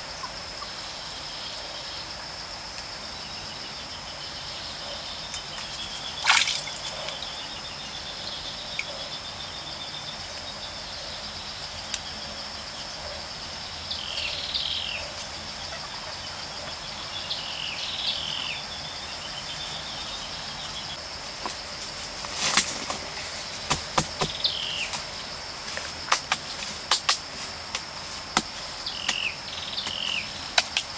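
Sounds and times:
high-pitched insect drone: 0.0 - 21.7.

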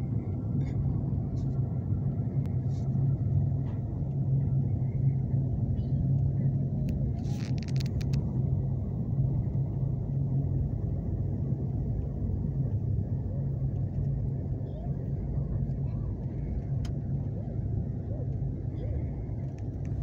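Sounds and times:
vehicle rumble from inside: 0.0 - 20.0.

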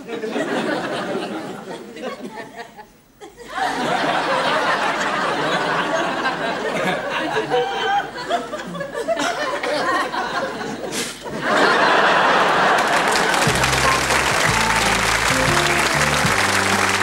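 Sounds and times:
studio audience laughing: 0.0 - 17.0
loud applause: 11.5 - 17.0
sitcom theme music: 13.2 - 17.0.

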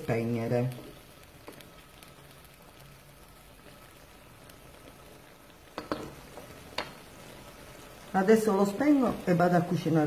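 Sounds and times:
food sizzling in a pan: 0.0 - 10.0
wooden spoon stirring: 0.2 - 9.3
spoon knocking against pan: 5.8 - 6.2.

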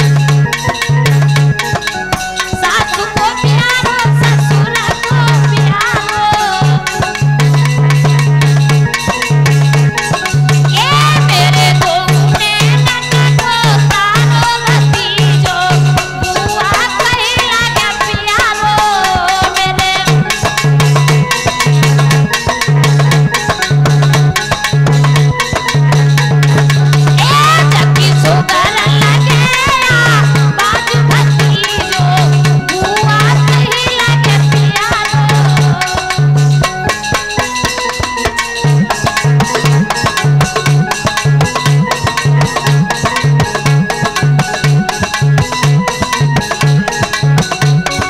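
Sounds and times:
electronic keyboard melody: 0.0 - 48.0
fast drum strokes: 0.0 - 48.0
person singing: 27.2 - 36.0.

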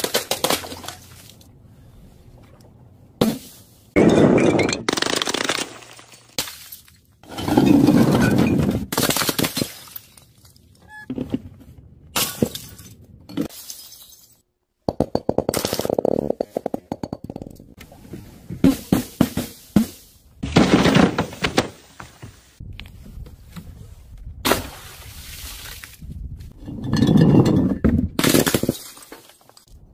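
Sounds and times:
glass bottles smashing: 12.2 - 14.4, 26.7 - 29.6
glass clinking and clattering: 26.6 - 27.8.

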